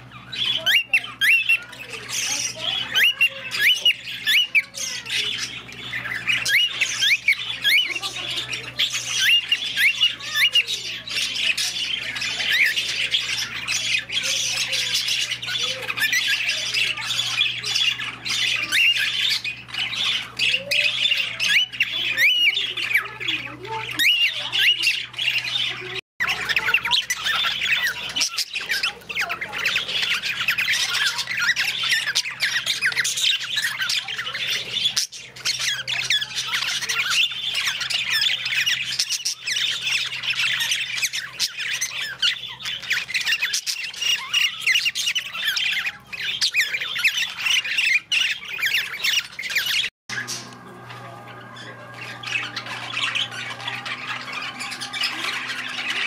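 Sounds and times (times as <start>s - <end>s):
birds chattering and squawking: 0.0s - 56.0s
steady low hum: 50.1s - 56.0s.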